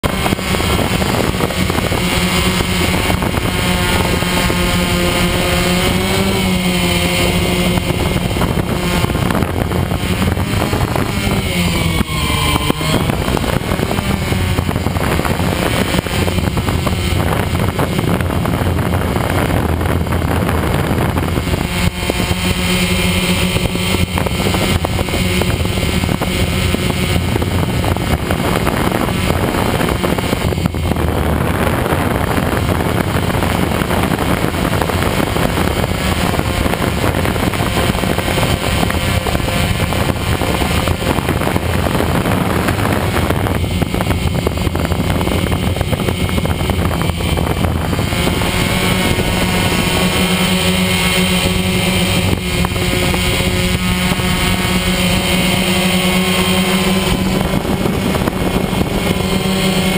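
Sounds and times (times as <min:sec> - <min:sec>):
drone propellers buzzing: 0:00.0 - 0:59.9
light wind noise: 0:00.0 - 0:59.9.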